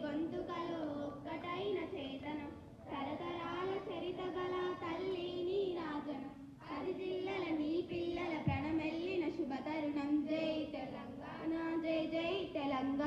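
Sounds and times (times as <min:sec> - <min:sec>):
children singing in unison: 0:02.8 - 0:09.2.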